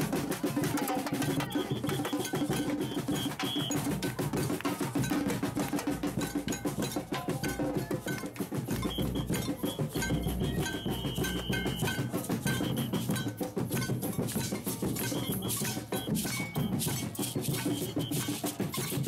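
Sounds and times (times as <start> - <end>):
fast drum strokes: 0.0 - 19.0
bright metallic whistle-like notes: 1.2 - 4.1, 8.7 - 19.0.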